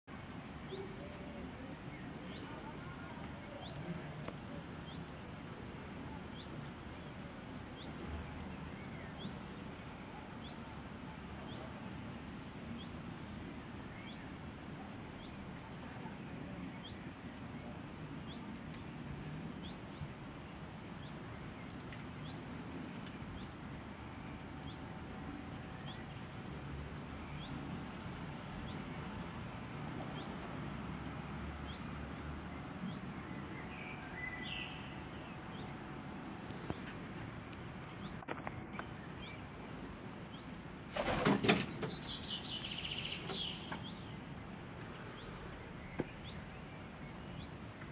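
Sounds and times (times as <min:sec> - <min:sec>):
songbird chirping: 0:28.6 - 0:47.9.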